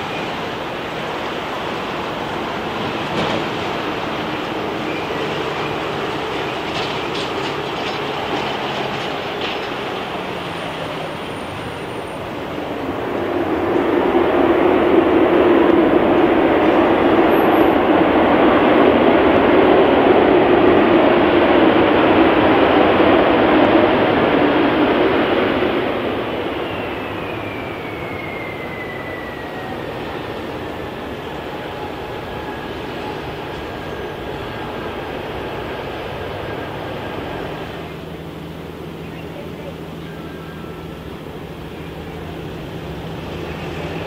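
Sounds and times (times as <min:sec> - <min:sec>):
jet airliner passing: 0:00.0 - 0:44.0.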